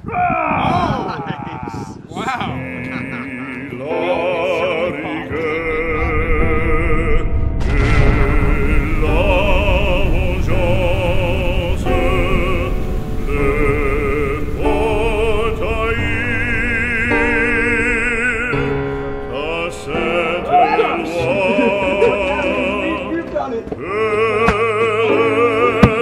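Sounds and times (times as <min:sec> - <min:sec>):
operatic singing voice: 0:00.0 - 0:26.0
orchestral accompaniment: 0:03.4 - 0:26.0.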